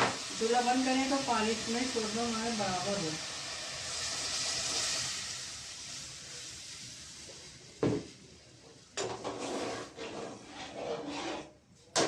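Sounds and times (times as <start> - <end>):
knock: 7.8 - 8.1
spoon stirring and scraping pot: 9.0 - 11.7.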